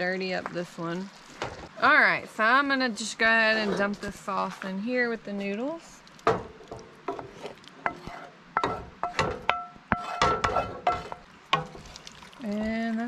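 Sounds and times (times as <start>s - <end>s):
wooden spoon knocking metal pot: 8.6s - 11.8s.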